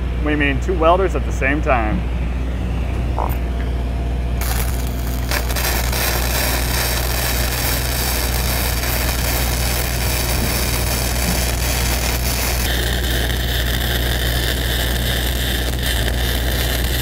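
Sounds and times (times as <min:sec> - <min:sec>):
diesel engine running: 0:01.8 - 0:17.0
welding arc crackling hiss: 0:04.4 - 0:17.0.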